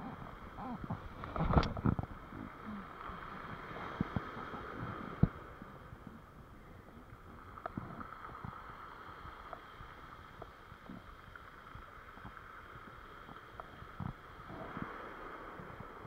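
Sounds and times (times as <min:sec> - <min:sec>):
surf washing on pebble beach: 0:00.0 - 0:06.0
wind on microphone: 0:00.0 - 0:10.0
faint clicks: 0:00.9 - 0:02.1.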